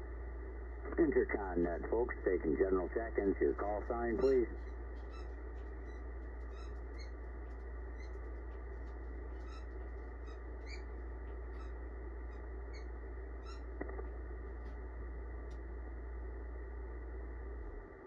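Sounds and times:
low hum: 0.0s - 18.0s
radio receiver hiss: 0.8s - 4.6s
faint high chirps: 4.1s - 7.2s, 9.3s - 13.7s.

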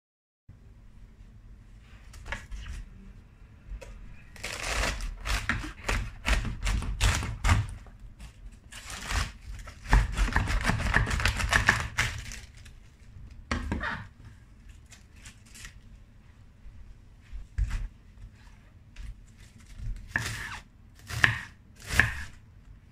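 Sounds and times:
knife cutting crunchy cabbage: 4.4s - 12.7s, 19.4s - 22.4s.

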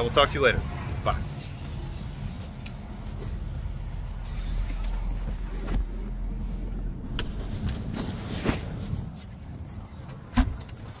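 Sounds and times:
low rumble: 3.4s - 9.6s.

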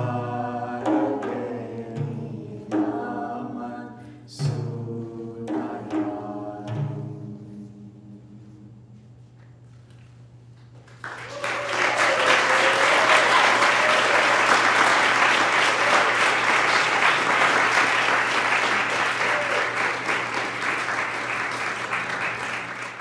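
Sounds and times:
audience applause: 10.8s - 23.0s
voices cheering: 11.1s - 23.0s.

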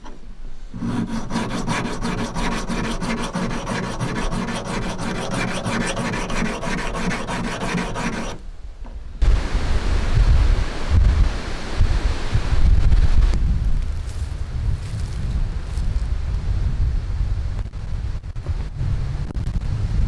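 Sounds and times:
hand file scraping metal blade: 0.7s - 8.4s.

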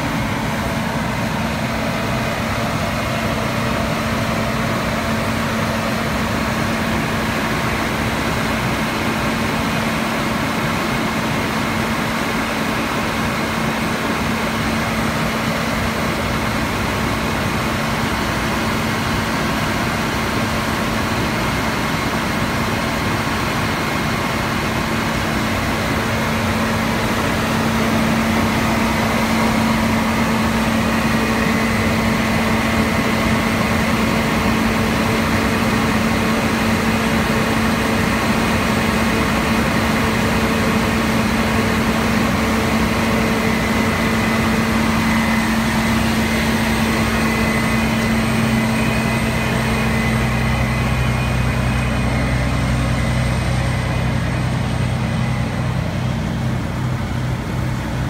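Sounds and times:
deeper engine hum: 14.8s - 58.0s
diesel engine droning: 21.5s - 58.0s.

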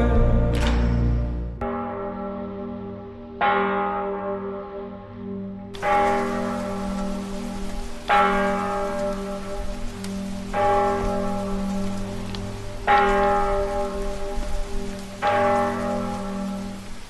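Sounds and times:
deep bell tolling: 0.0s - 16.9s
rain hiss: 5.8s - 17.0s.

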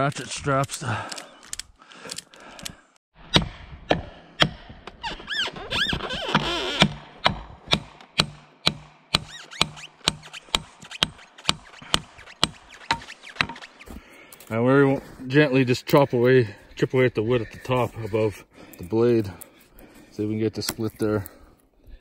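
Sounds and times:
hand tool striking tree trunk: 6.8s - 13.7s.

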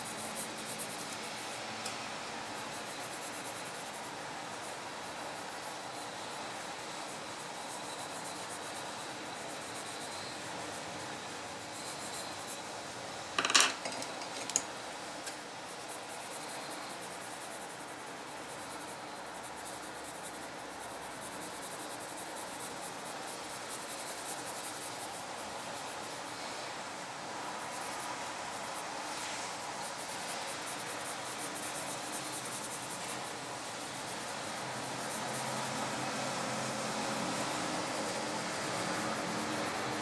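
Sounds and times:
steady hiss: 0.0s - 40.0s
pencil clattering down: 13.4s - 14.6s.

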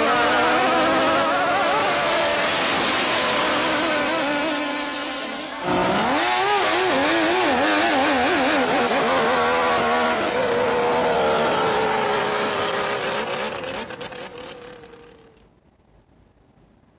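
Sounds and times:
loud rushing noise: 1.7s - 8.1s.

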